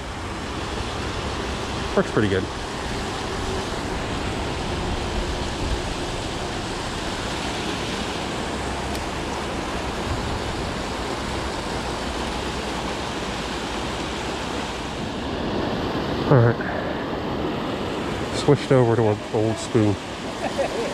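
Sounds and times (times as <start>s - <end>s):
water pouring over dam: 0.1s - 15.0s.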